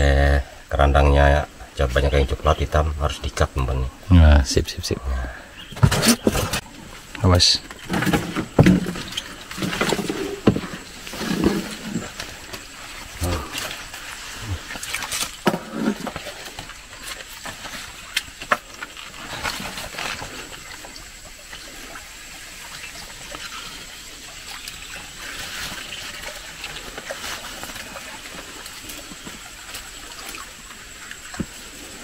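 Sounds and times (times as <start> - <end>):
steady high hiss: 0.0 - 32.0
water trickling and lapping: 4.8 - 32.0.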